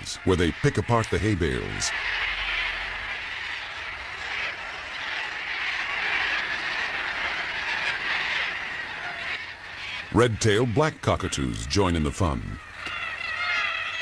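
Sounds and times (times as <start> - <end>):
flock of cockatoos calling: 0.0 - 14.0.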